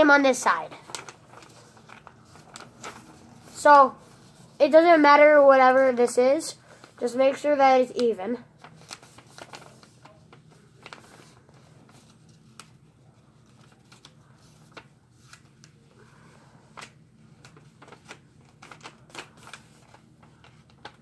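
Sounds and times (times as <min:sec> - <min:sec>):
low room hum: 0:00.1 - 0:21.0
paper crinkling and clicks: 0:00.4 - 0:03.8, 0:08.0 - 0:15.8, 0:16.7 - 0:21.0.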